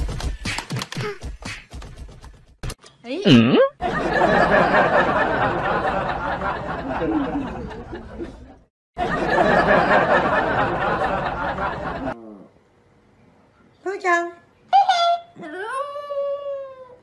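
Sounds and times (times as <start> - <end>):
people laughing: 3.8 - 12.2.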